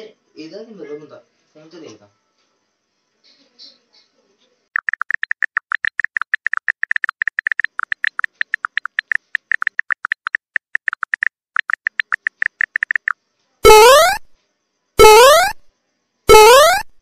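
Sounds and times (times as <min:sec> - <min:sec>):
rapid high blips: 0:04.8 - 0:14.3, 0:15.0 - 0:15.7, 0:16.3 - 0:17.0.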